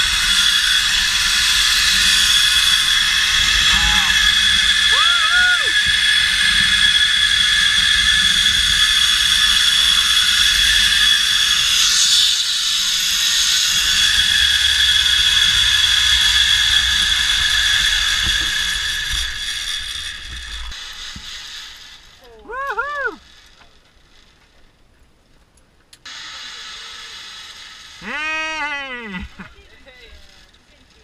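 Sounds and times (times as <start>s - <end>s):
zip-line pulleys whining on cable: 0.0s - 24.6s, 26.0s - 31.0s.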